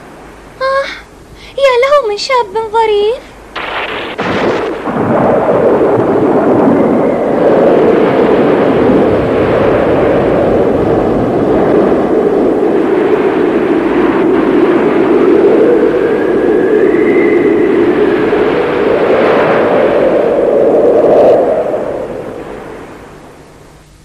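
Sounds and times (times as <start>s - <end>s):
wind roaring: 0.0s - 24.0s
sharp crash: 3.6s - 6.9s
heaving waves: 3.6s - 23.2s.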